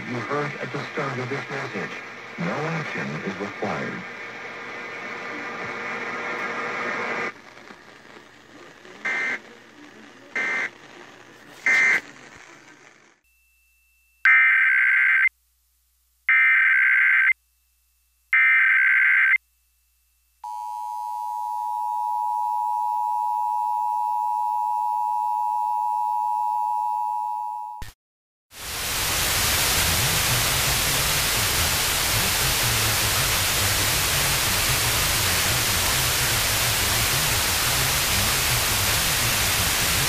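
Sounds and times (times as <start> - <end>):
radio hiss: 0.0 - 13.2, 28.6 - 40.0
digital data bursts: 9.0 - 9.5, 10.2 - 10.8, 11.6 - 12.4.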